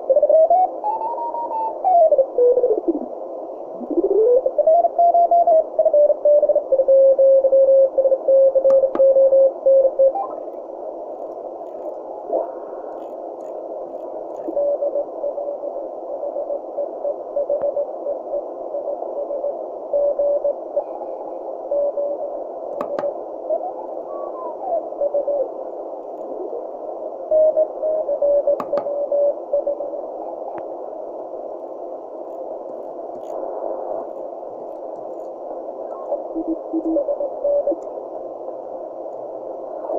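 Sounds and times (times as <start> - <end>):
radio band hiss: 0.0 - 39.9
sharp clicks: 22.8 - 23.1, 28.6 - 28.9.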